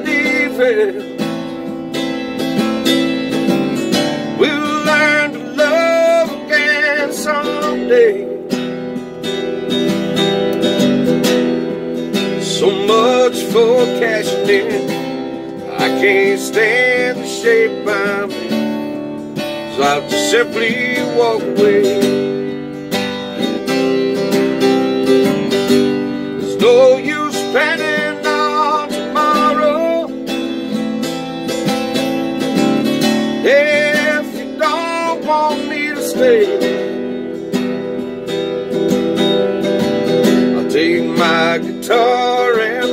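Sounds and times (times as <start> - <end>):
acoustic guitar strumming: 0.0 - 42.9.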